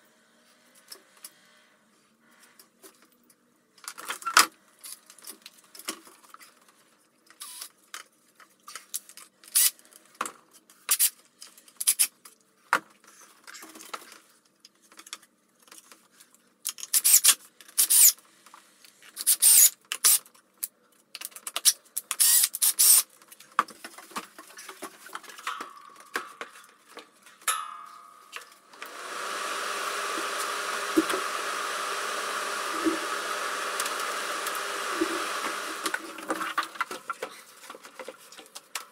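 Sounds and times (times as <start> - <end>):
cordless drill driving screws: 22.2 - 23.0, 28.7 - 36.4
fan motor humming: 28.6 - 36.7.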